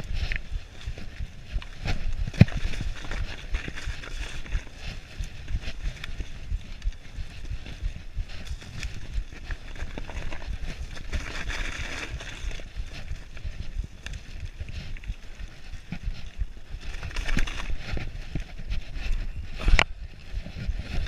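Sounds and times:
bike rattling over bumps: 0.0 - 21.0
tyres crunching through dry leaves: 0.0 - 21.0.

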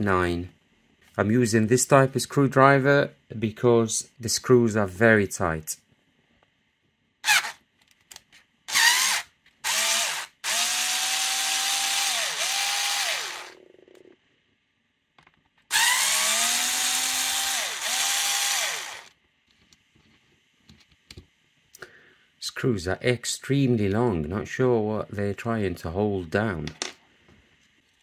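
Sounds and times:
cordless screwdriver motor whine: 7.2 - 7.6, 8.7 - 13.6, 15.7 - 19.1.

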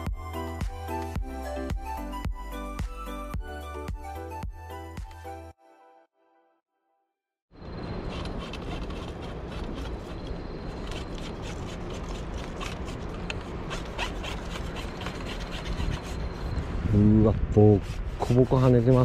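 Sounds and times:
rubbing on camera microphone: 13.7 - 16.8, 17.5 - 19.0.

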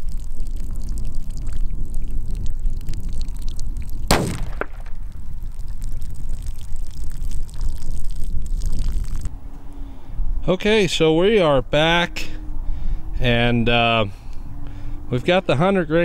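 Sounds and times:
wind rumbling on microphone: 0.0 - 15.4
bullet hitting plastic barrel: 4.1 - 5.0
rifle shot crack: 4.1 - 5.2.

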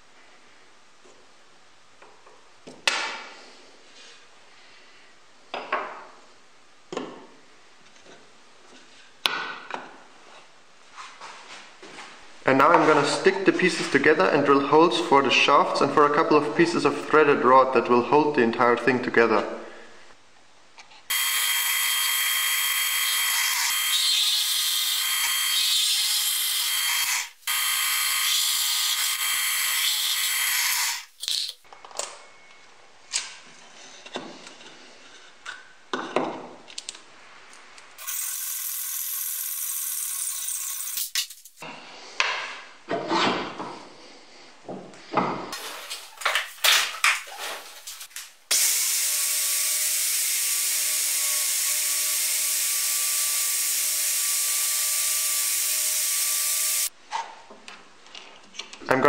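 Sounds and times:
angle grinder whine: 21.1 - 31.1, 48.5 - 56.9.

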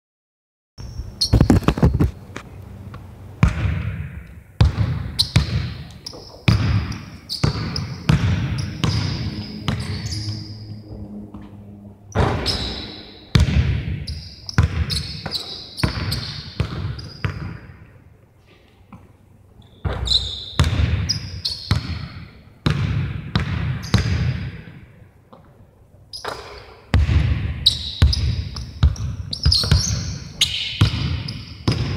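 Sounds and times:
basketball bouncing in hall: 2.9 - 18.1, 18.9 - 31.9
brief high squeak: 12.1 - 13.2, 19.6 - 20.6.

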